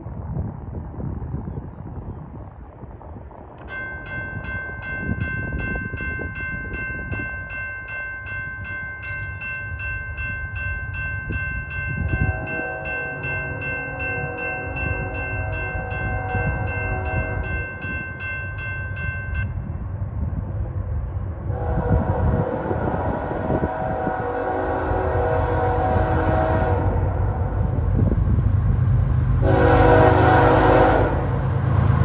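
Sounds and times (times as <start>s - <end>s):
train rumble: 0.0s - 32.0s
locomotive air horn blast: 12.2s - 13.2s, 21.5s - 27.1s, 29.4s - 31.4s.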